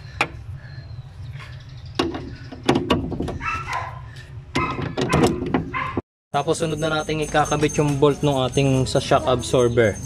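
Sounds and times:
dog barking: 3.4s - 6.0s.

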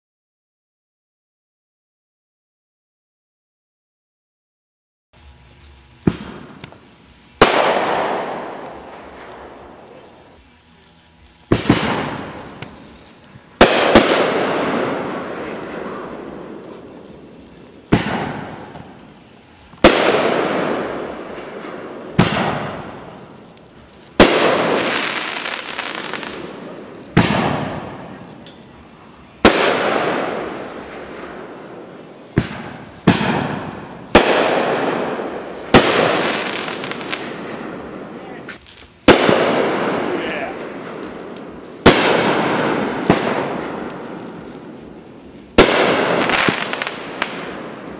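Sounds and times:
firework launch thump: 5.3s - 6.8s
firework shell bursting bang: 6.0s - 6.8s, 11.5s - 17.3s, 17.9s - 19.0s, 19.8s - 23.4s, 24.2s - 28.7s, 29.4s - 44.8s.

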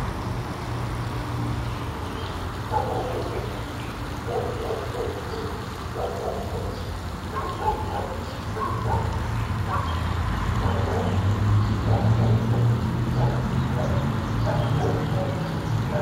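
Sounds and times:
low rumble of road traffic: 0.0s - 16.0s.

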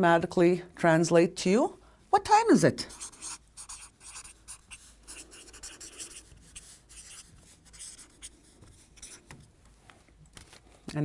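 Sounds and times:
marker pen writing on paper: 2.9s - 9.4s.

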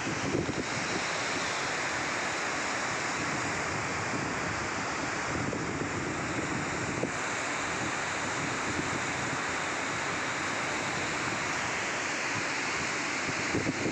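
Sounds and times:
wind buffeting microphone: 0.0s - 1.0s, 3.2s - 9.5s, 12.4s - 13.9s
river rushing over rocks: 0.0s - 13.9s.

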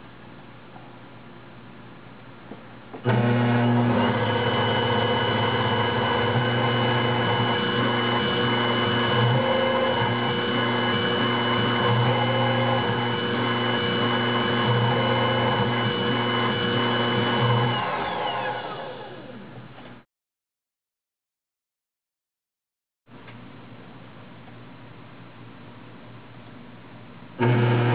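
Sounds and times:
spindle motor high whine: 3.1s - 19.6s, 27.4s - 27.9s
low machine hum: 23.1s - 27.9s.

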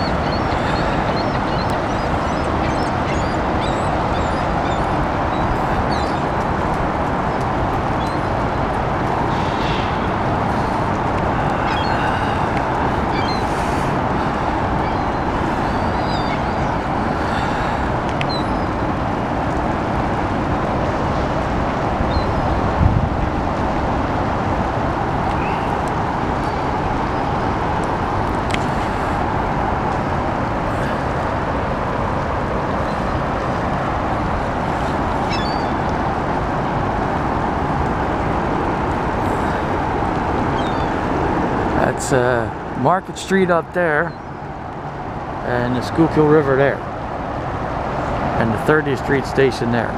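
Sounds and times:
gulls giving short calls: 0.0s - 6.2s.

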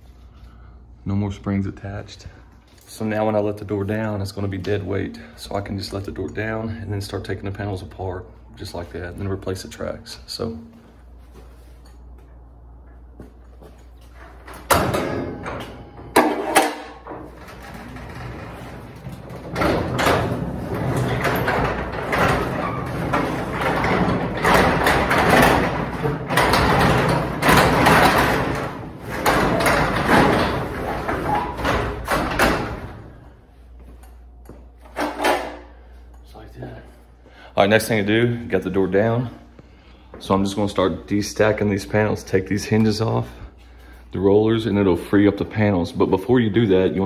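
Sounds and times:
garage door rollers rattling: 14.2s - 33.4s, 34.9s - 35.7s
garage door knocks: 14.6s - 33.1s.

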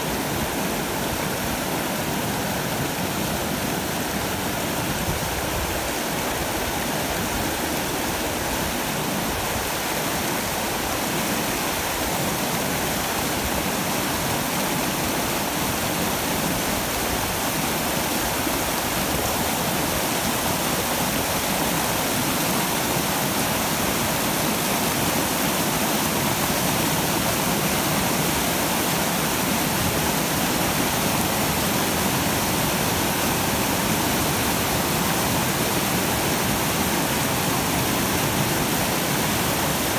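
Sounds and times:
river rushing over rocks: 0.0s - 39.9s.

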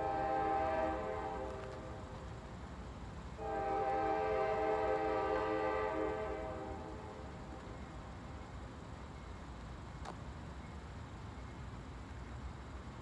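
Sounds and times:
distant locomotive air horn blasts: 0.0s - 2.1s, 3.4s - 7.3s.

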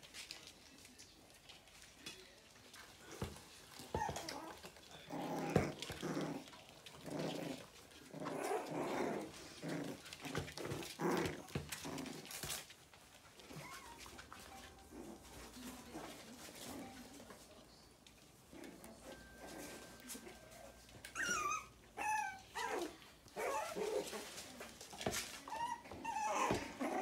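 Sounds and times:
puppies play-growling: 0.0s - 27.0s.

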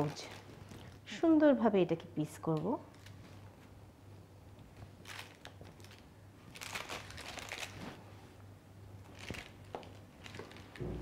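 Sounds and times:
steady low hum: 10.7s - 11.0s.

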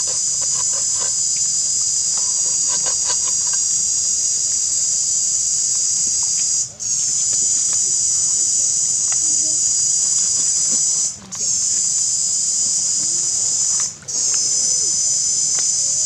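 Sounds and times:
cicadas droning: 0.0s - 16.0s.

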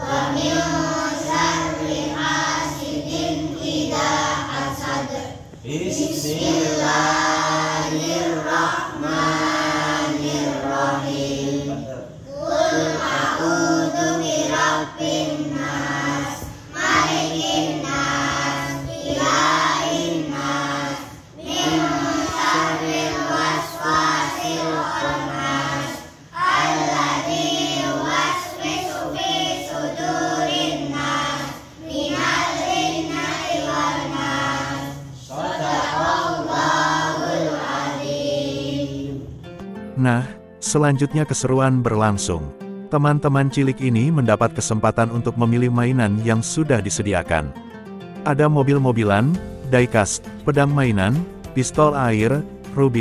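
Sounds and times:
children chanting in unison: 0.0s - 39.3s.

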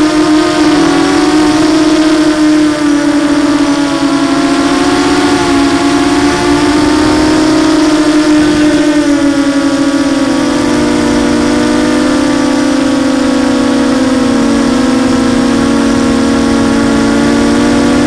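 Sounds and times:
quadcopter motors whining: 0.0s - 18.0s.

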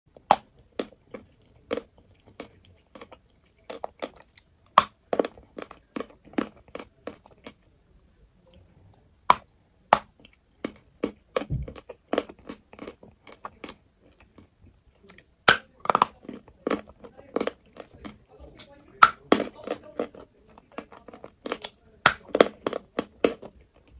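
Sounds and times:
chalk crunching while chewed: 0.1s - 7.8s, 9.3s - 23.9s
dull low bump: 11.5s - 11.8s.

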